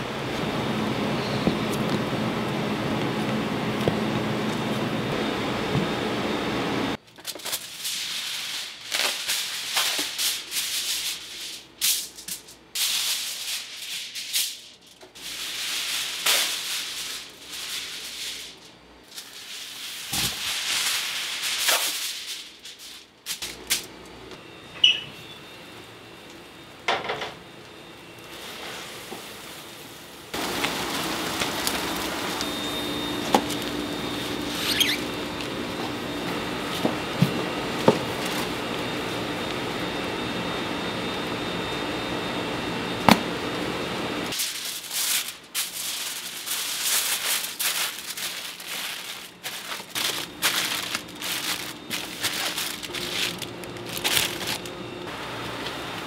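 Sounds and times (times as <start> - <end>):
steady hum: 0.0 - 7.0, 29.0 - 56.0.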